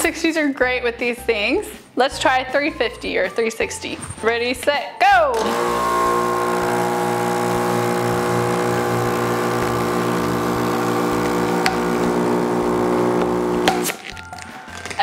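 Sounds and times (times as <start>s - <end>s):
balloon inflator motor hum: 5.4s - 14.1s.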